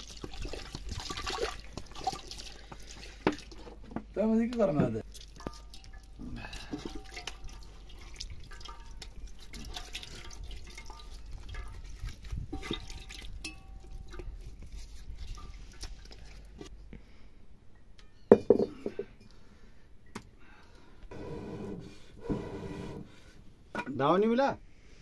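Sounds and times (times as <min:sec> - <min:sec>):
water splashing and dripping: 0:00.0 - 0:03.7, 0:05.0 - 0:16.7
clinks against metal basin: 0:05.3 - 0:14.4.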